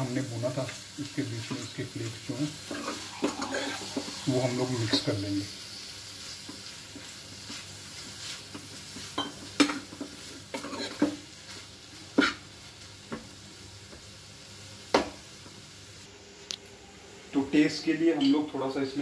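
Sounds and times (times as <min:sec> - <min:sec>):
faint sizzle: 0:00.0 - 0:19.0
ladle stirring food in pan: 0:00.7 - 0:12.5.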